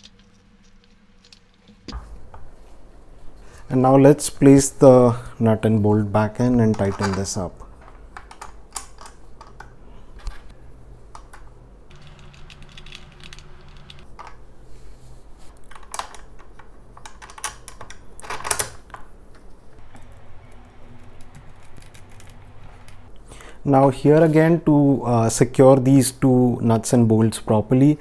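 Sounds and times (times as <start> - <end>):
nut and bolt clicking: 6.6 - 10.5, 15.6 - 20.3.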